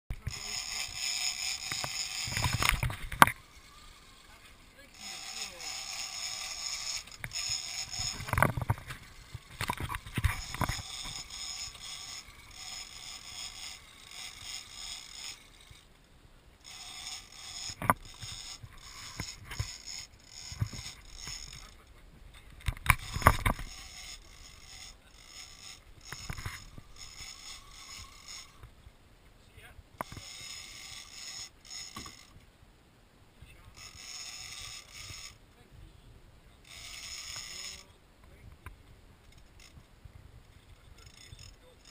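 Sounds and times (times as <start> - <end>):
fishing reel whirring: 0.1 - 16.0, 16.6 - 22.0, 22.6 - 28.7, 30.0 - 32.4, 33.6 - 35.4, 36.6 - 38.0, 39.2 - 39.9, 40.5 - 41.9.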